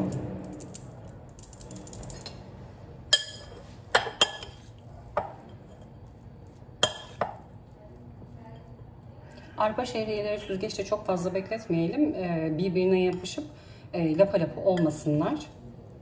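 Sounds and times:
utensil clinking on glass bowl: 6.5 - 7.5.

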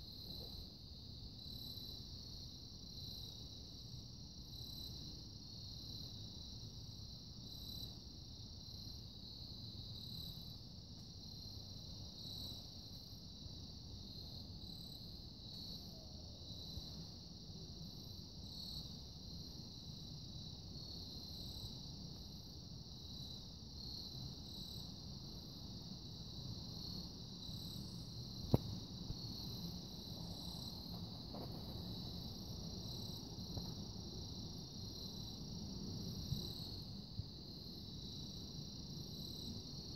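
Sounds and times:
crickets chirping: 0.0 - 39.9.

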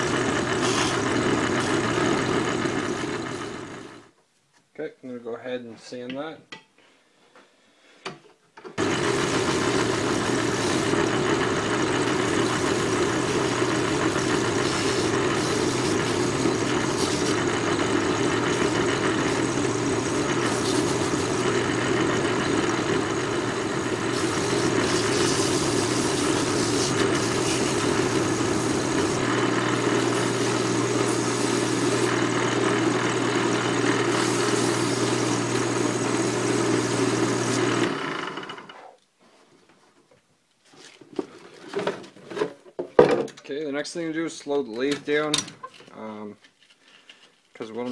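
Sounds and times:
wood lathe running: 0.0 - 4.1, 8.8 - 38.8
hand sanding on lathe: 0.6 - 2.0, 8.8 - 32.3, 34.0 - 37.9.

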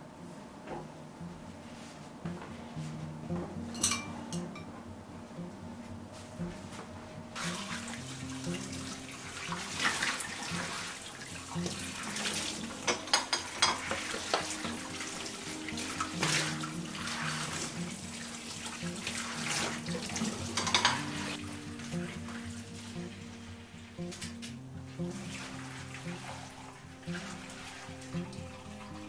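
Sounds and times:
soft background music: 0.0 - 29.0
crockery clinking: 3.7 - 4.7, 12.8 - 14.8, 20.5 - 21.3
tap water running into sink: 7.4 - 22.4.

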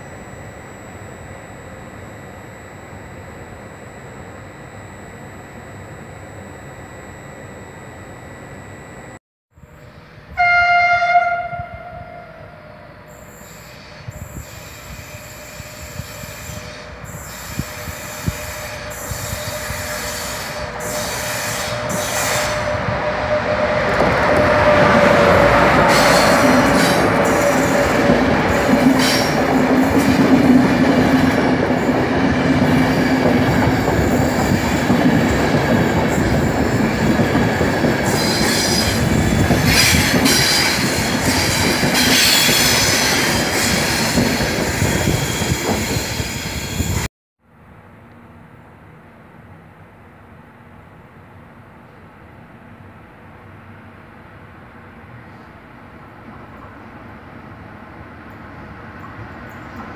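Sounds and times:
train wheels rumbling on rails: 13.2 - 47.1.

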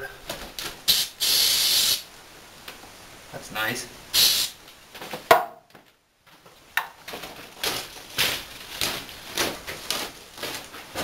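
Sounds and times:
footsteps crunching on gritty floor: 6.3 - 11.0.

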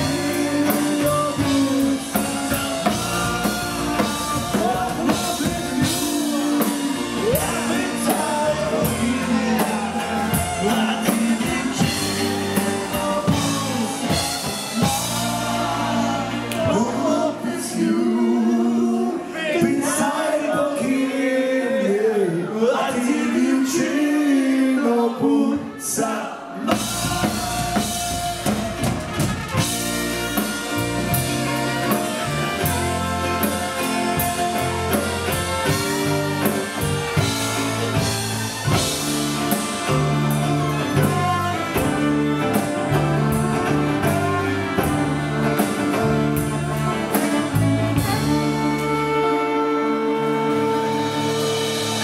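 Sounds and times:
drum beat: 0.0 - 16.8, 26.7 - 49.0
dance band playing: 0.0 - 19.1, 26.0 - 52.0
person singing: 0.0 - 29.7, 30.3 - 52.0.

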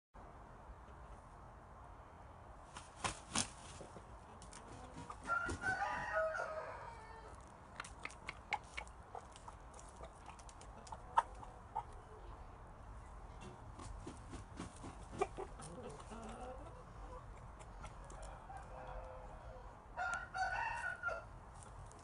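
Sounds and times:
rooster crowing: 5.2 - 7.4, 18.1 - 21.3
rooster pecking ground: 7.3 - 11.9
sharp clicks: 7.7 - 9.0.

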